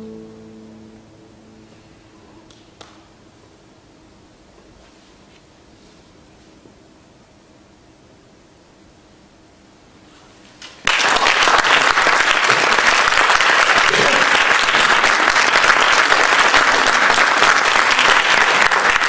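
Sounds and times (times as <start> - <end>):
audience applauding: 10.8 - 19.0.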